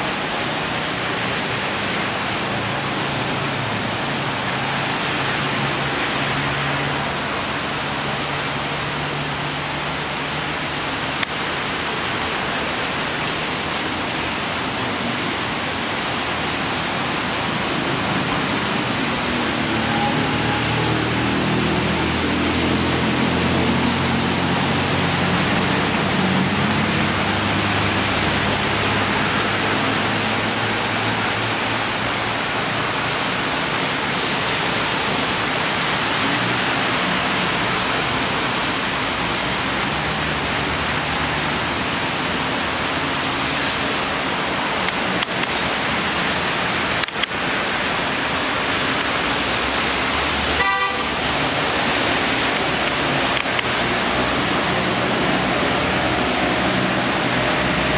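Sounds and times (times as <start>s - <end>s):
heavy rain hissing: 0.0s - 57.9s
vehicles passing on wet road: 0.0s - 57.9s
vehicle horn toot: 50.6s - 51.2s.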